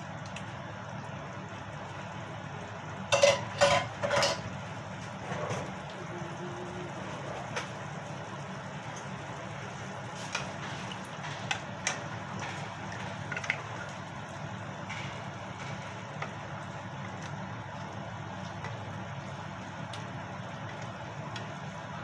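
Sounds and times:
utensils knocking against pan: 3.1s - 4.5s.

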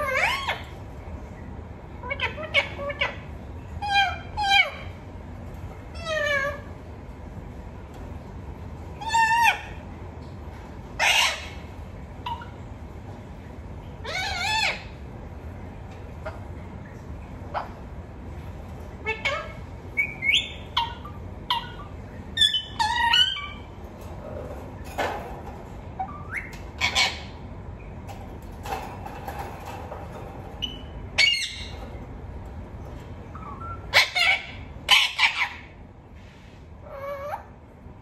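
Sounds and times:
parakeet squawking: 0.0s - 0.8s, 2.0s - 5.0s, 5.9s - 6.7s, 9.0s - 9.9s, 11.0s - 12.6s, 14.0s - 15.1s, 17.4s - 17.9s, 19.0s - 28.0s, 28.6s - 32.3s, 32.9s - 35.8s, 36.8s - 37.6s.

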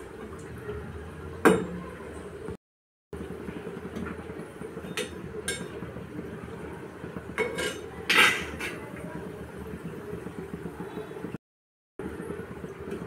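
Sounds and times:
deep-frying sizzle and crackle: 3.2s - 11.4s, 12.0s - 13.0s
metal spoon clinking against pan: 7.4s - 8.8s.

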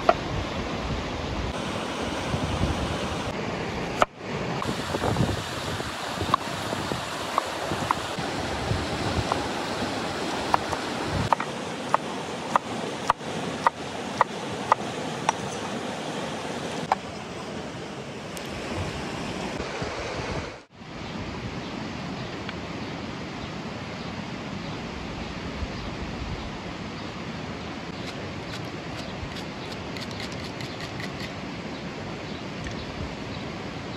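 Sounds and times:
river rushing: 0.0s - 25.0s.

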